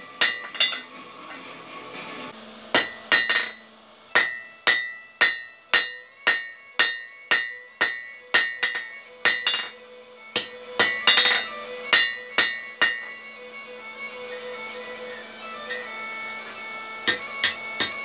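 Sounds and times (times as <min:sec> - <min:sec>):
hammer striking iron on anvil: 0:00.0 - 0:01.4, 0:02.7 - 0:13.3, 0:15.6 - 0:18.0.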